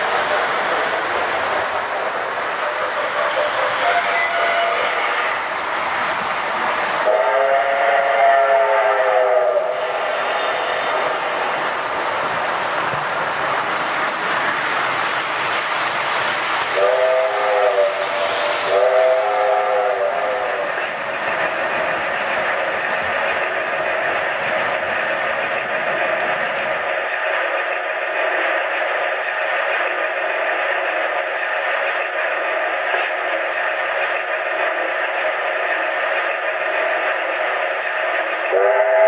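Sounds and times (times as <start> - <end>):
model trains rolling on metal track: 0.0 - 39.0.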